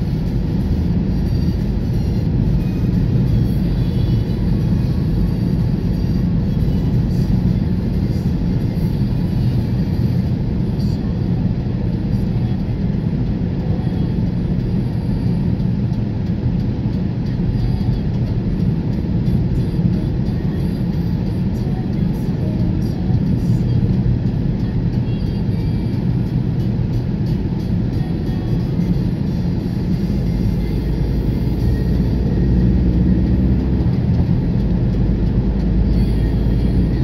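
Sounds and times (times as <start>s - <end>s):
car road and engine noise: 0.0s - 37.0s.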